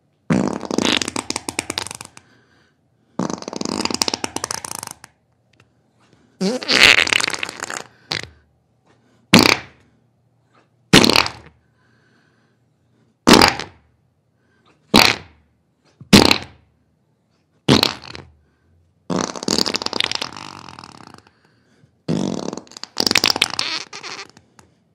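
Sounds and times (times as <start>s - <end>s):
farting: 0.3s - 2.3s, 3.1s - 5.2s, 6.4s - 8.4s, 9.3s - 9.8s, 10.9s - 11.6s, 13.3s - 13.9s, 14.9s - 15.4s, 16.1s - 16.6s, 17.7s - 18.4s, 19.1s - 21.4s, 22.1s - 24.8s.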